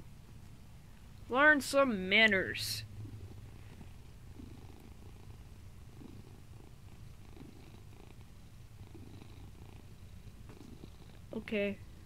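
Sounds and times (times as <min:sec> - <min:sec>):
cat purring: 0:02.4 - 0:12.0.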